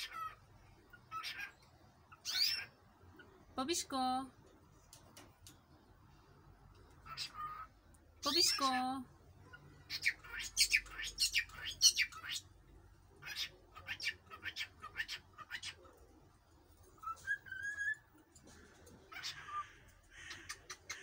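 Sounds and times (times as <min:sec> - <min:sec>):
cockatiel chirping: 0:17.0 - 0:18.0.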